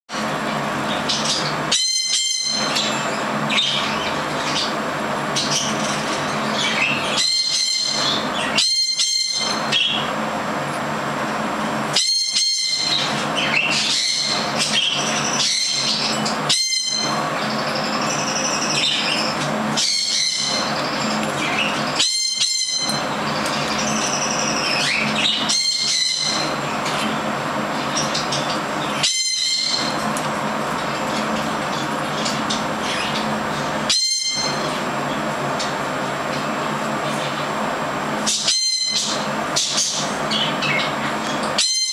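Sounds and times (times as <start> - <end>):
parrot chirping and whistling: 11.9 - 26.7, 28.9 - 30.1, 33.9 - 34.7, 38.3 - 40.9.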